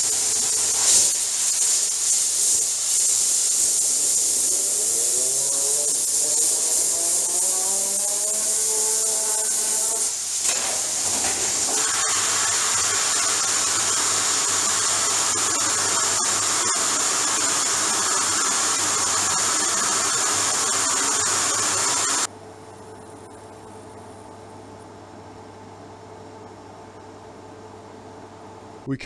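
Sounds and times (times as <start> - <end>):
compressed air hissing: 0.0 - 22.3
fidget spinner whine: 0.0 - 24.7.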